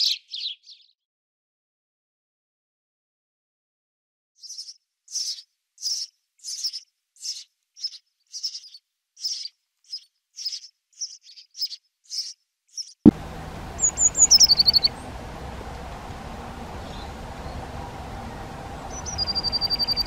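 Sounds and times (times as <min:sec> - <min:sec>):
sparrows chirping: 0:00.0 - 0:00.9, 0:04.4 - 0:20.0
bird descending high notes: 0:13.8 - 0:15.0.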